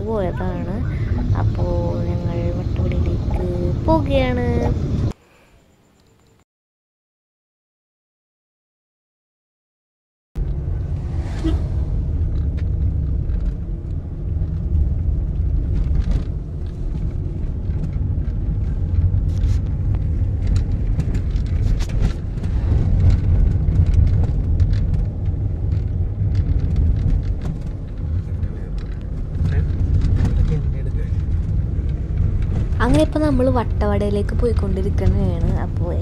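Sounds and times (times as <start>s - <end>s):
road and engine rumble: 0.0s - 5.2s, 10.4s - 36.0s
small rattles and clicks: 12.3s - 33.3s.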